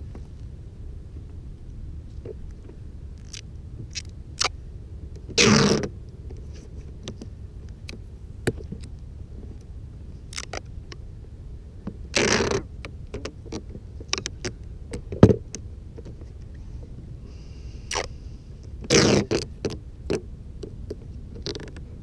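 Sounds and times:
ripping scrapes: 5.4 - 5.9, 18.8 - 19.5.

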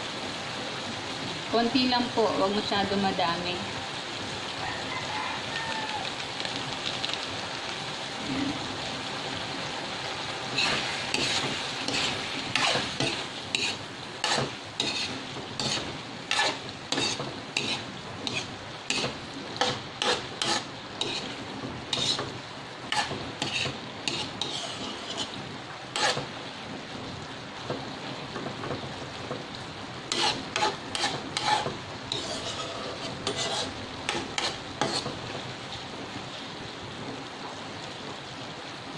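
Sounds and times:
sauce sizzling: 0.0 - 38.9
metal spatula scraping wok: 10.5 - 26.4, 30.1 - 35.4.

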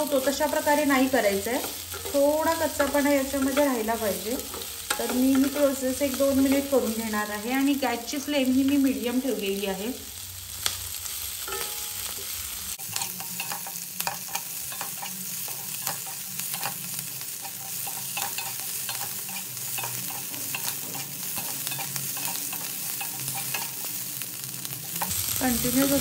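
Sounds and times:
vegetables sizzling in hot oil: 0.0 - 26.0
spatula scraping pan: 12.8 - 24.0.

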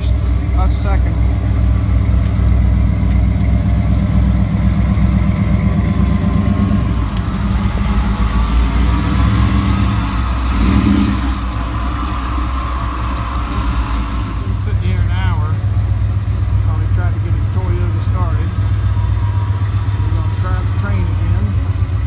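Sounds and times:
swamp buggy engine running: 0.0 - 22.0.

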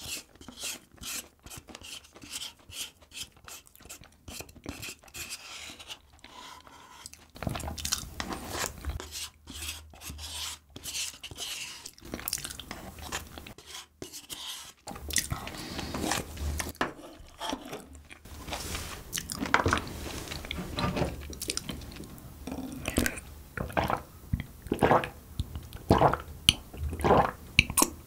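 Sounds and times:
wooden spoon scraping paper cup: 0.0 - 22.2
chewing and mouth sounds: 7.1 - 8.1, 11.9 - 13.5, 15.1 - 15.8, 19.1 - 19.5, 21.3 - 28.0.

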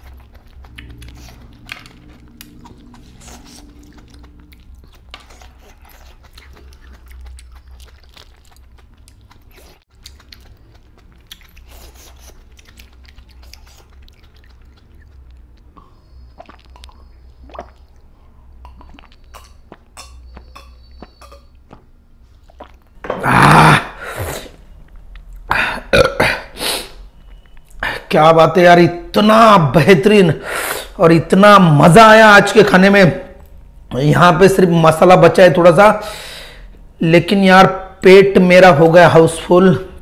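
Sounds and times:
wet mouth clicks: 0.0 - 22.9
soft chewing: 0.0 - 23.0, 24.3 - 25.5, 27.0 - 28.1
loud burp: 23.0 - 24.0, 25.5 - 26.5.

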